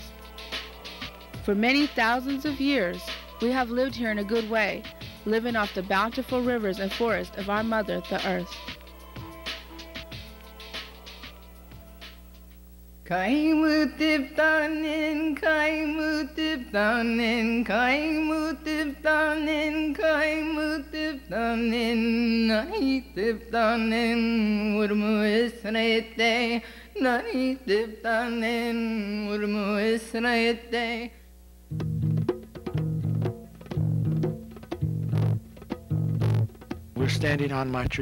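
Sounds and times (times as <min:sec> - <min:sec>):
plucked bass: 0:31.7 - 0:38.0.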